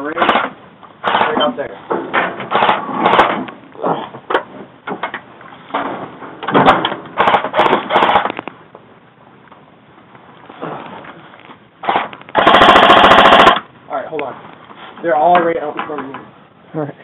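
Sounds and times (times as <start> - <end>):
airsoft guns firing in bursts: 2.5 - 3.4, 7.2 - 8.3, 11.8 - 13.7.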